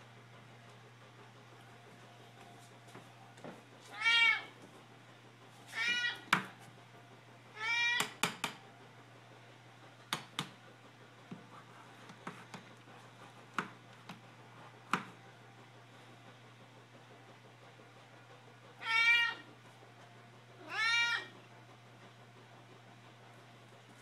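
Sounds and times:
low steady hum: 0.0 - 24.0
cat meowing: 3.9 - 4.5, 5.7 - 6.3, 7.6 - 8.1, 18.8 - 19.5, 20.6 - 21.4
sharp taps and knocks: 8.0 - 8.6, 10.1 - 10.6.

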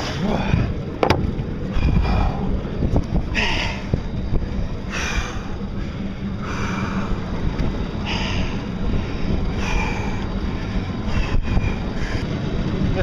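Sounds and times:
boat moving: 0.0 - 13.0
wind rumble on microphone: 0.0 - 13.0
man breathing close to microphone: 1.6 - 12.7.

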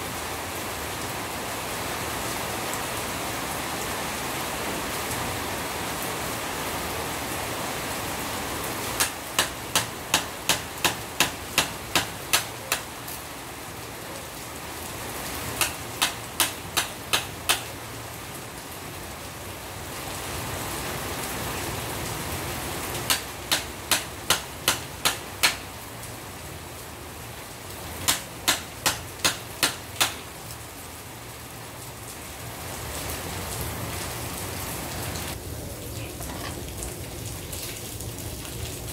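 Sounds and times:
rain hissing: 0.0 - 38.9
hammer striking chisel: 9.0 - 12.8, 15.6 - 17.6, 23.1 - 25.6, 28.1 - 30.2.

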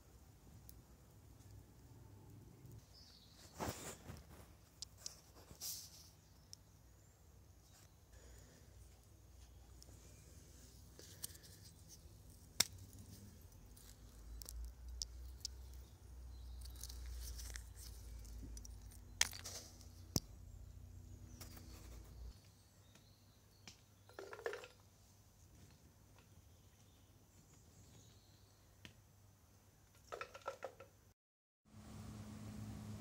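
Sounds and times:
stone clicking on stone: 11.0 - 20.3.

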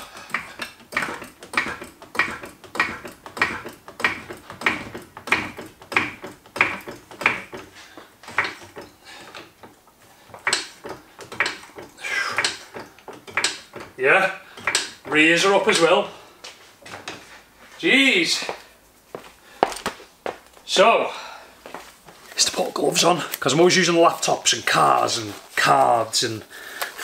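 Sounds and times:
trolley jack pumping clacks: 0.0 - 15.9.

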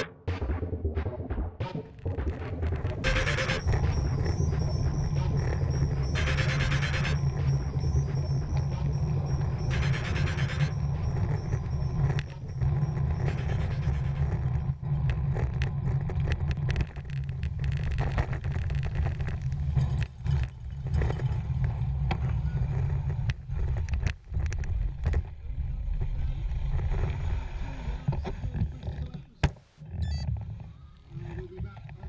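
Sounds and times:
bicycle clicks and rattles: 14.2 - 22.1.

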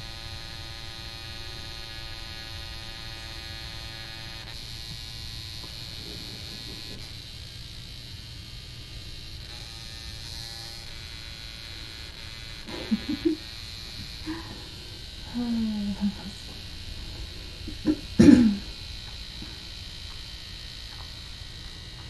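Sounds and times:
electrical buzz and hum: 0.0 - 22.0.

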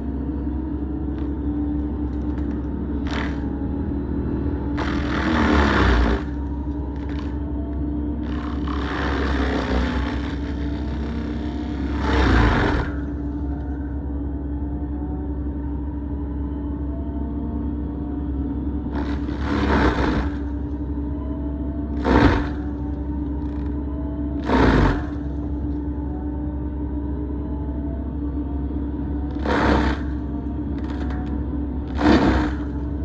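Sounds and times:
mulcher grinding tree trunk: 0.0 - 13.8, 18.6 - 26.4, 29.0 - 33.0
forestry mulcher humming: 0.0 - 15.2, 18.2 - 33.0.

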